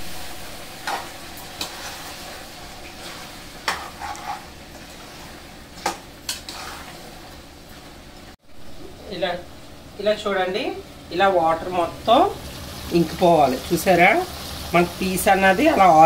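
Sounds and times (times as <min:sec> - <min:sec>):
meat sizzling in a pot: 0:00.0 - 0:08.9, 0:11.7 - 0:16.0
spoon scraping a pot: 0:03.0 - 0:07.1.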